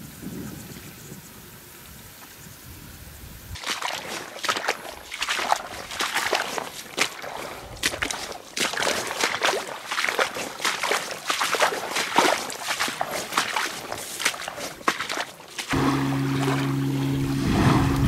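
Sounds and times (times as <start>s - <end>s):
small waves lapping on shore: 3.6s - 18.0s.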